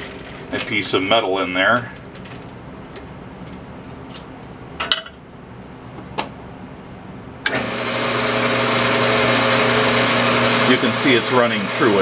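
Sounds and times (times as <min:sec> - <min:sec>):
lathe motor humming and whirring: 0:07.5 - 0:12.0.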